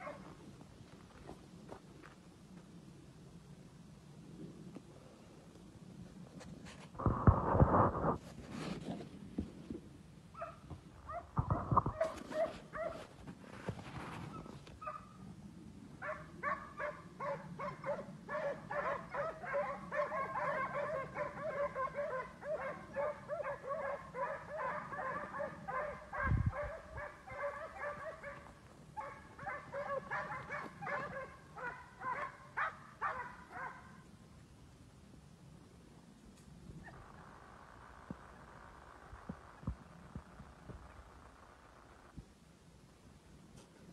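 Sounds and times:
hounds baying and yelping: 0.0s - 0.3s, 10.3s - 13.1s, 14.2s - 15.2s, 16.0s - 34.0s.

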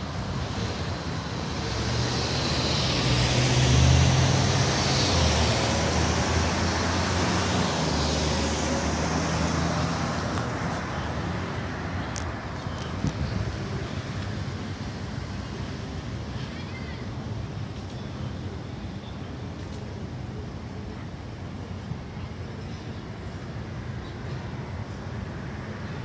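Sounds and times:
passing vehicle engine and tyres: 0.0s - 16.3s.

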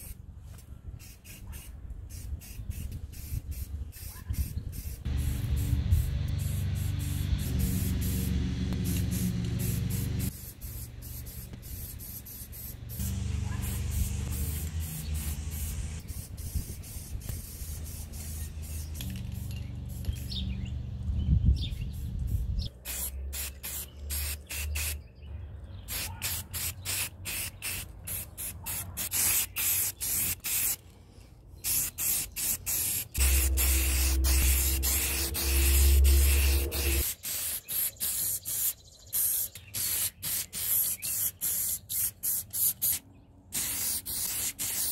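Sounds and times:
aerosol spray can hissing: 1.0s - 20.4s, 22.9s - 25.0s, 25.9s - 30.8s, 31.6s - 43.0s, 43.6s - 44.9s
low rumble: 5.1s - 10.3s, 33.2s - 37.0s.

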